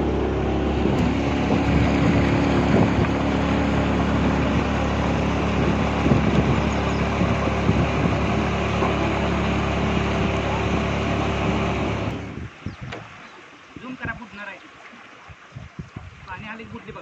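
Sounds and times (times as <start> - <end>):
motorboat engine running: 0.0 - 13.1
water rushing along hull: 0.0 - 17.0.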